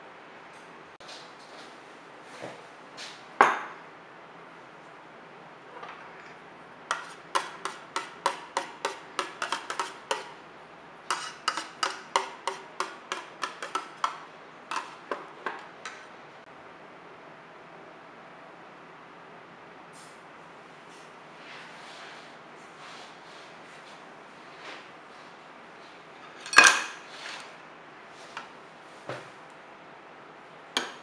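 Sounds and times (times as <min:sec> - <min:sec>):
teaspoon tapping metal mould: 0:06.9 - 0:10.3, 0:11.1 - 0:15.0.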